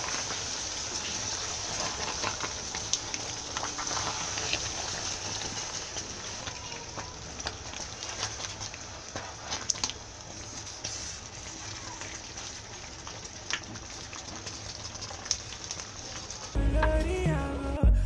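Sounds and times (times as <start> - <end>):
wooden spoon stirring pot: 0.0 - 17.0
stew bubbling and sizzling: 0.0 - 17.6.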